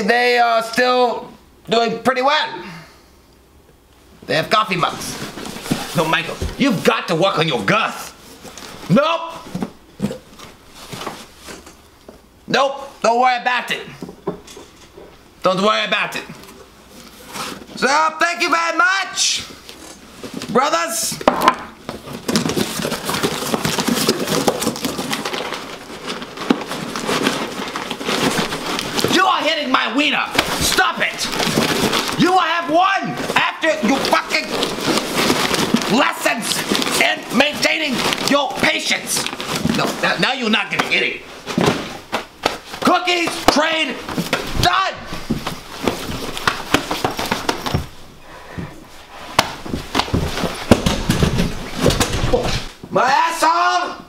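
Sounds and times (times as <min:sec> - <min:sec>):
packaging rustling and crinkling: 0:04.8 - 0:07.0, 0:08.1 - 0:12.1, 0:21.8 - 0:52.8
bodies thumping and slapping: 0:04.8 - 0:07.2, 0:21.2 - 0:52.9.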